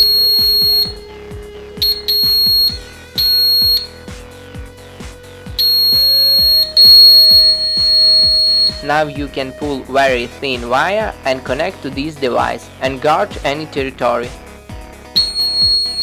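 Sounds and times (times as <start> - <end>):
piezo buzzer high-pitched tone: 0.0 - 4.7, 5.5 - 10.0, 15.2 - 16.0.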